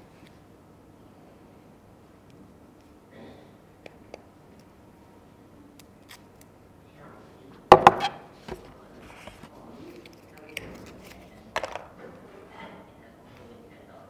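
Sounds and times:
objects knocked on a table: 0:07.7 - 0:08.2, 0:11.6 - 0:11.9.

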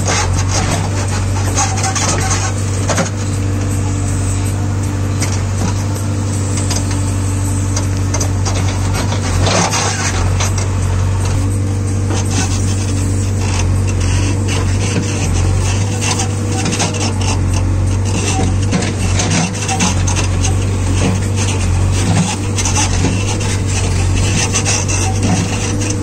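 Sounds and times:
diesel engine running: 0:00.0 - 0:26.0.

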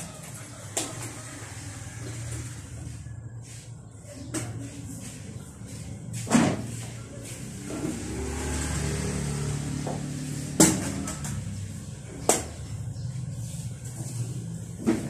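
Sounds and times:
scooter engine running: 0:07.4 - 0:15.0.

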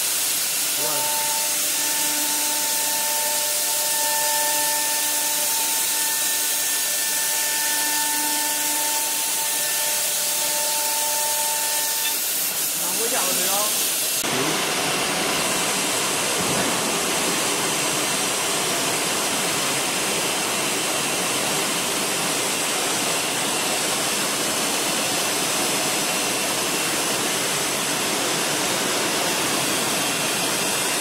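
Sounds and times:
rushing machine noise: 0:00.0 - 0:31.0
faint high whine: 0:00.8 - 0:12.2.

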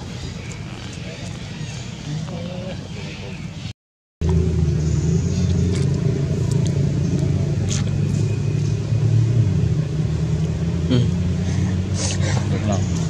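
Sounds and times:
steady low rumble: 0:04.2 - 0:11.7.

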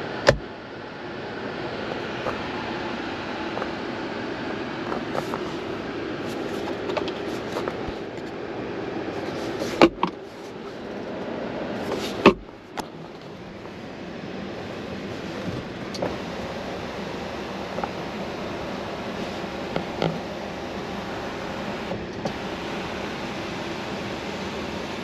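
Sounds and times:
armrest lid clacking: 0:00.2 - 0:00.5, 0:04.8 - 0:05.6, 0:06.3 - 0:08.0, 0:09.5 - 0:10.2, 0:11.8 - 0:13.7
steady hiss: 0:01.0 - 0:25.0.

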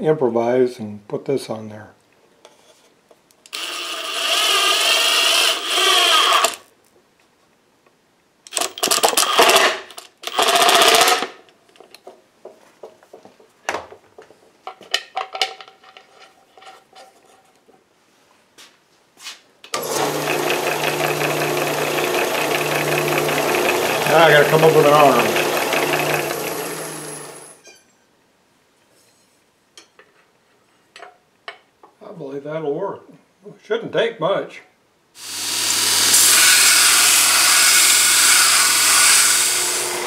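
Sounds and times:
cordless drill driving bolt: 0:03.5 - 0:06.6
drill press humming: 0:03.5 - 0:06.6, 0:19.8 - 0:27.6, 0:35.2 - 0:40.0.

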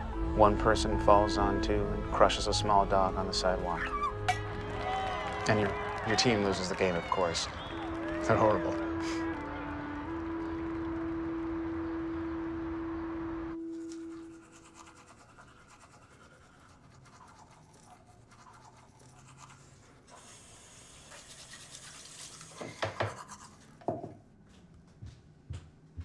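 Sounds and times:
toothbrush scrubbing teeth: 0:13.8 - 0:23.8.

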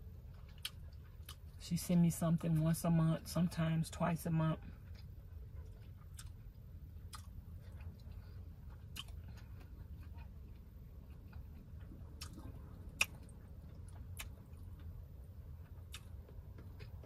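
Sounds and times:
low steady hum: 0:00.0 - 0:17.0
person chewing: 0:00.2 - 0:01.6, 0:04.8 - 0:17.0.

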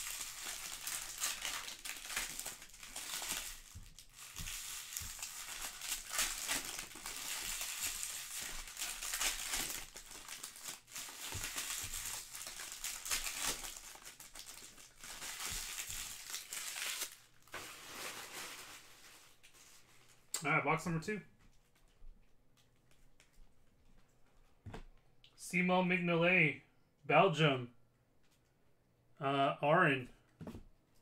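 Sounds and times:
foil wrappers crinkling: 0:00.0 - 0:20.3.

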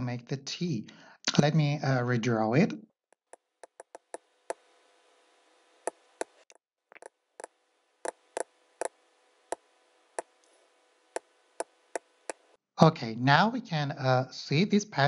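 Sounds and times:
computer mouse clicking: 0:03.6 - 0:04.2.

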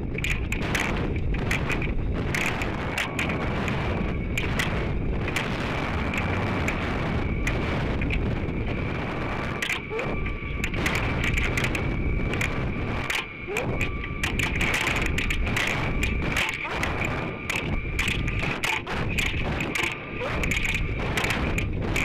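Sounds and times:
irregular clicks and knocks: 0:00.0 - 0:08.8, 0:09.5 - 0:22.0
air rushing with low rumble: 0:00.0 - 0:22.0
faint high whine: 0:00.0 - 0:22.0.

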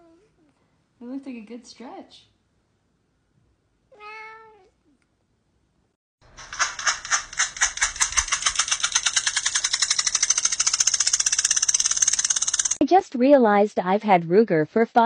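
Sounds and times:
cat meowing: 0:03.9 - 0:04.8.

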